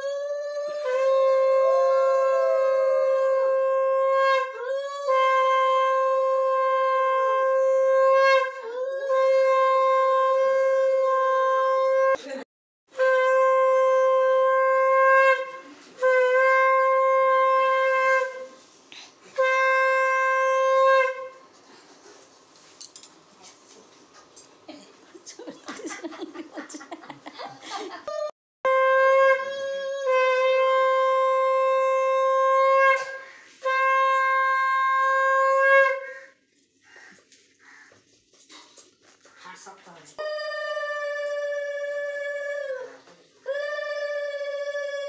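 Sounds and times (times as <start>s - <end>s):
breaths: 18.7s - 19.4s, 33.2s - 33.6s, 36.1s - 39.6s
conch shell blasts: 28.7s - 36.2s.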